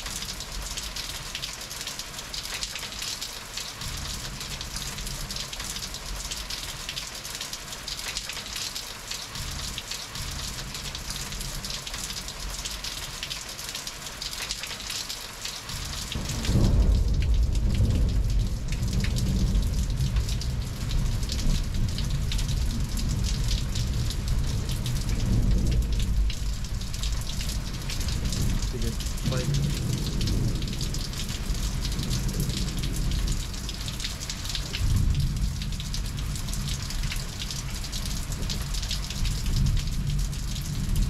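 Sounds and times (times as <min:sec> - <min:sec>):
heavy rain falling: 0:00.0 - 0:41.0
deep thunder rumbling: 0:15.8 - 0:41.0.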